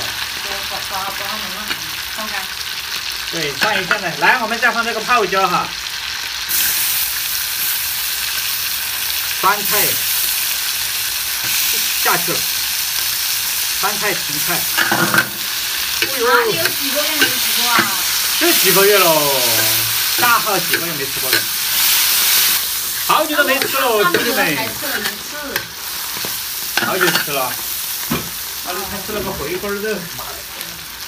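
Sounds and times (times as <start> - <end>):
food sizzling in hot oil: 0.0 - 31.0
metal spatula scraping wok: 14.4 - 18.9, 19.6 - 28.1.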